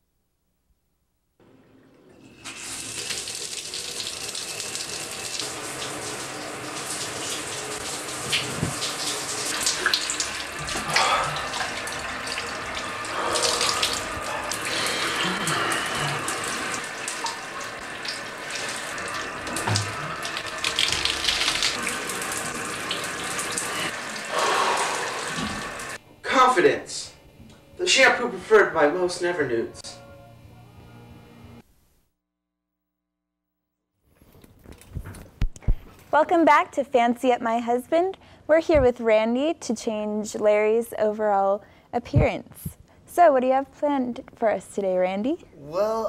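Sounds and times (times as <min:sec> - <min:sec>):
shower spray splashing: 0:02.4 - 0:26.0.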